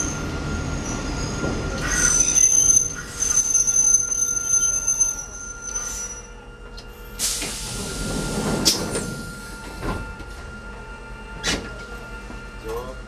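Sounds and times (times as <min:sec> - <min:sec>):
train wheels squealing: 0:00.0 - 0:09.9.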